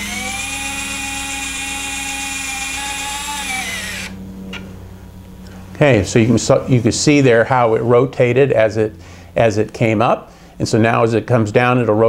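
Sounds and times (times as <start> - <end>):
small motor whining: 0.0 - 4.6.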